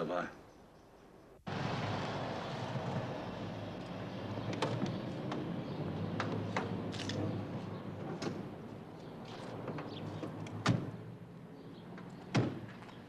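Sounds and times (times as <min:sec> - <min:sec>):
car doors slamming shut: 0:10.6 - 0:11.0, 0:12.3 - 0:12.8.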